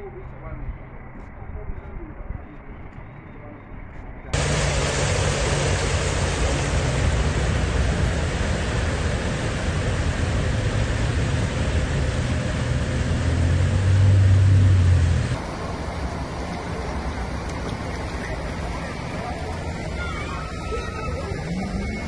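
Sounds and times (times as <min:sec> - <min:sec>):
vehicle engine rumble: 0:04.3 - 0:22.0
heavy rain falling: 0:04.4 - 0:20.0.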